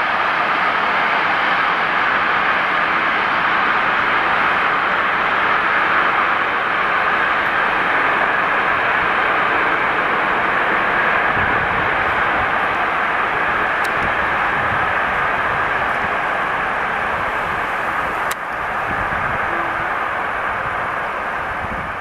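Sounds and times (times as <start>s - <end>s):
distant freight train rolling: 0.0s - 22.0s.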